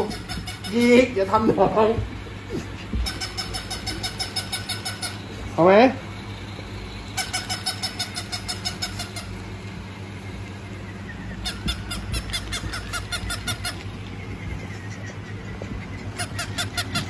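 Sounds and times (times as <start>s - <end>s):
toy dog electronic yips: 0.0s - 0.8s, 3.0s - 5.3s, 7.2s - 9.4s, 11.2s - 13.8s, 16.0s - 17.0s.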